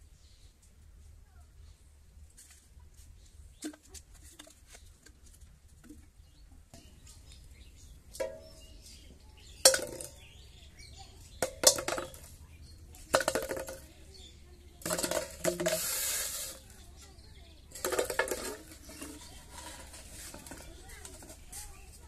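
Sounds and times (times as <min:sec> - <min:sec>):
bottles clicking while handled: 0:08.1 - 0:08.7, 0:09.6 - 0:10.3, 0:11.4 - 0:12.4, 0:13.1 - 0:13.9, 0:14.8 - 0:16.6, 0:17.7 - 0:21.4
plastic bottles knocking metal basin: 0:08.1 - 0:10.6, 0:11.3 - 0:16.7, 0:17.7 - 0:21.4.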